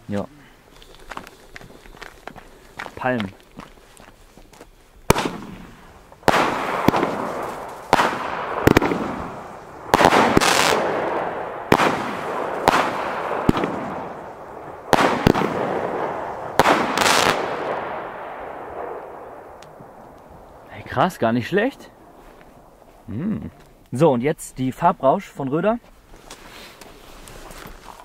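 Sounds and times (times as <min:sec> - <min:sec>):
firework crackling: 0:05.0 - 0:20.8
firework bangs: 0:05.1 - 0:20.7.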